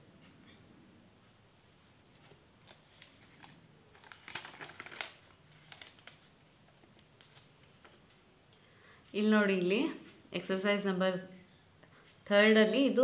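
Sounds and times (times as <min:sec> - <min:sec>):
paper pages turning: 0:02.1 - 0:08.0.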